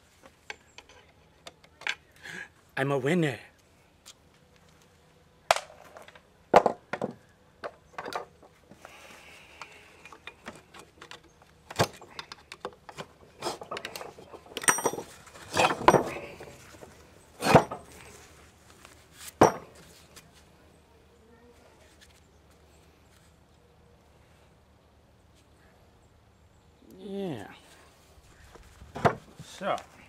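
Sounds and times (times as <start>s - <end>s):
metal parts clinking and knocking: 13.6s - 16.6s
metallic ring: 14.6s - 16.2s.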